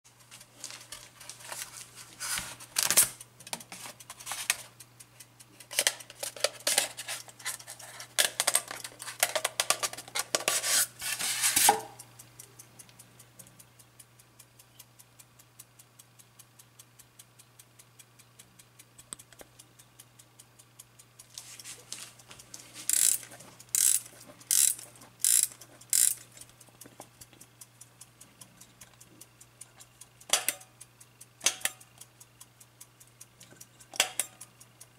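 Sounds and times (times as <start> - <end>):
clock ticking fast: 0.1 - 34.9
styrofoam packing scraping and rustling: 0.4 - 3.1, 10.0 - 11.7.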